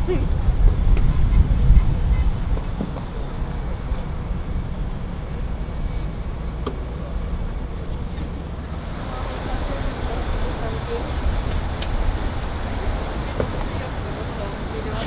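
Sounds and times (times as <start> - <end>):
wind buffeting microphone: 0.0 - 6.6
road traffic rumble: 0.0 - 15.0.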